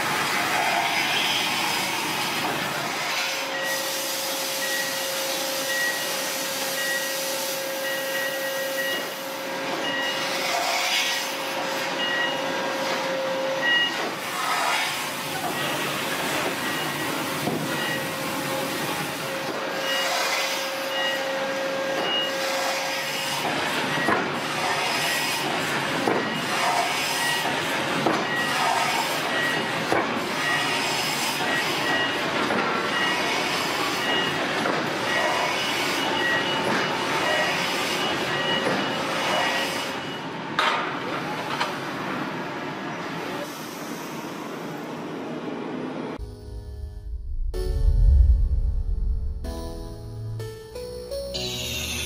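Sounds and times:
machinery din: 0:46.2 - 0:52.0
short high beep: 0:46.2 - 0:52.0.

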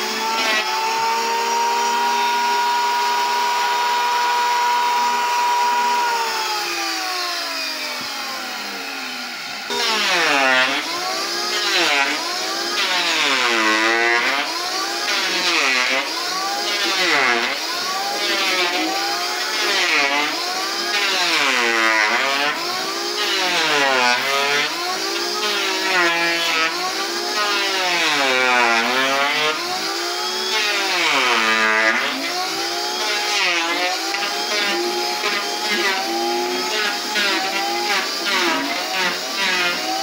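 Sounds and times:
electric planer shaving wood: 0:00.0 - 0:40.0.

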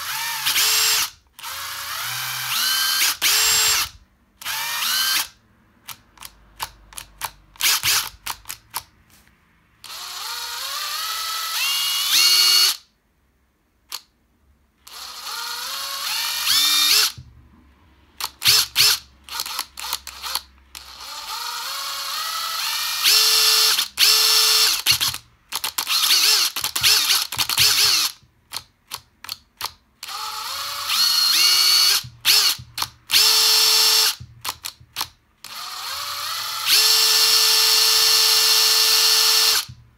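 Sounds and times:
impact driver motor whining: 0:00.0 - 0:05.4, 0:09.8 - 0:12.8, 0:14.9 - 0:17.2, 0:18.2 - 0:28.3, 0:30.0 - 0:39.8.

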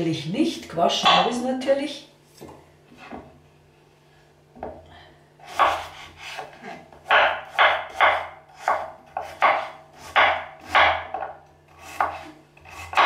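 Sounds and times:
knife chopping carrot on board: 0:05.5 - 0:13.0.

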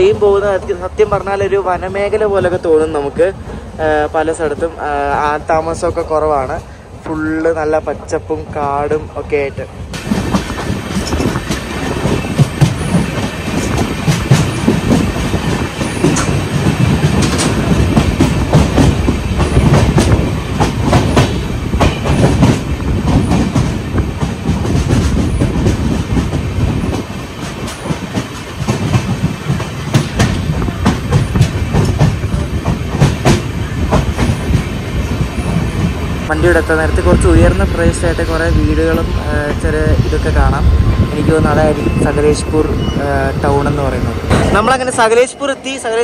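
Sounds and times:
train wheels rumbling on rail: 0:00.0 - 0:46.0
track clicks and knocks: 0:09.9 - 0:36.0, 0:44.0 - 0:45.0.

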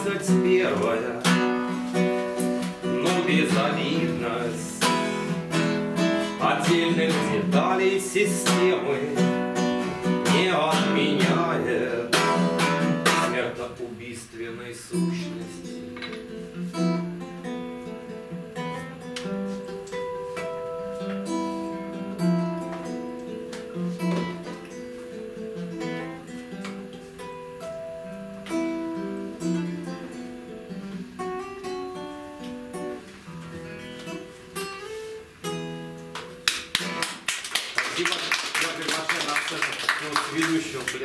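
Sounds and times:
classical guitar fingerpicking: 0:00.0 - 0:13.6, 0:14.8 - 0:37.3
applause: 0:36.2 - 0:41.0.

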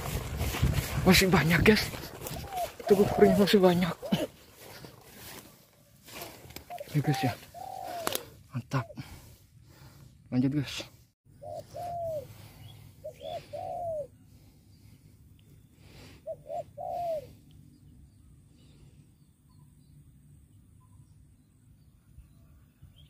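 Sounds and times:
doves cooing: 0:00.0 - 0:09.2, 0:11.3 - 0:14.6, 0:16.0 - 0:17.5.

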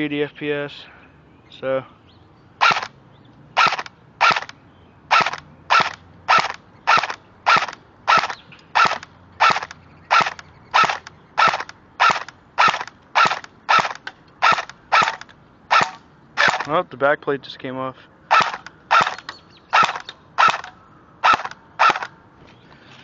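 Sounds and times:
airsoft rifle single shots: 0:02.6 - 0:02.9, 0:03.6 - 0:16.7, 0:18.3 - 0:22.2.

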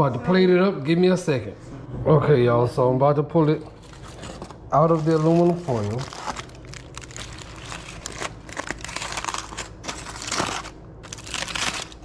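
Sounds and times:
aluminium foil crinkling: 0:03.8 - 0:12.0.

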